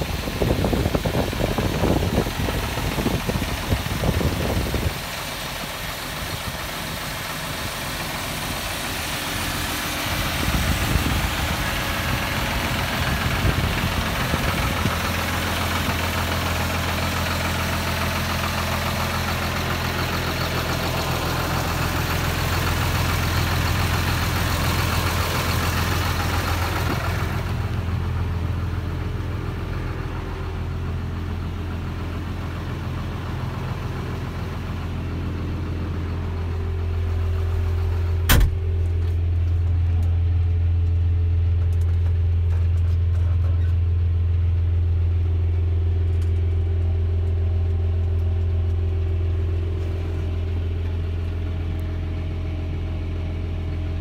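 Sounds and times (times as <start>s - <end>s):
tractor diesel engine idling: 0.0s - 54.0s
sharp knock: 38.3s - 38.6s.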